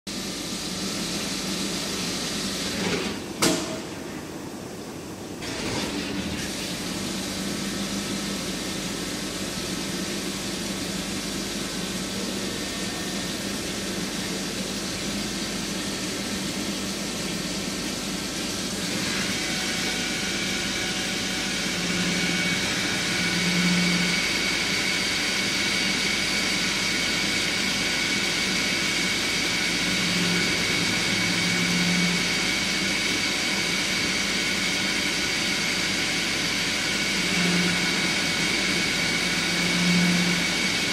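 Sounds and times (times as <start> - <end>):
lathe whirring: 18.7 - 40.9.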